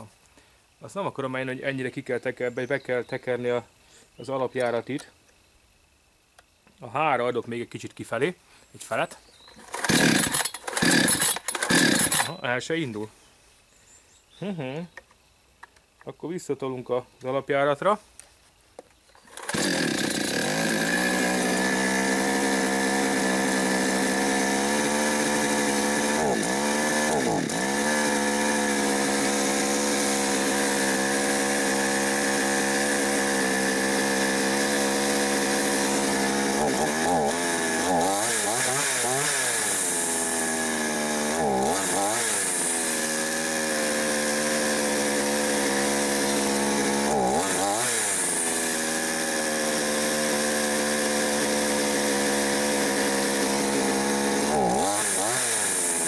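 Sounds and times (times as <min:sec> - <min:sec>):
chainsaw starting and idling: 0:09.5 - 0:12.4, 0:19.1 - 0:56.0.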